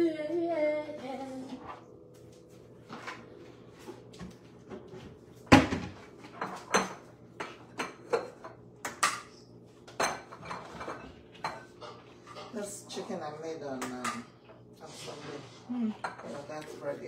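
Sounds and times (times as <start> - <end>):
kitchen knocks and clinks: 5.4 - 9.3, 9.9 - 12.6.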